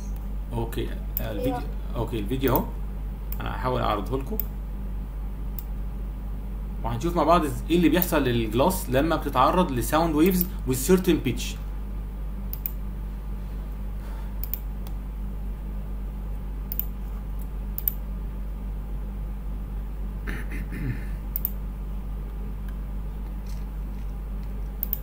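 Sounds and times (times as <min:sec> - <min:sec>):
low hum: 0:00.0 - 0:25.0
mouse and keyboard clicks: 0:24.4 - 0:25.0.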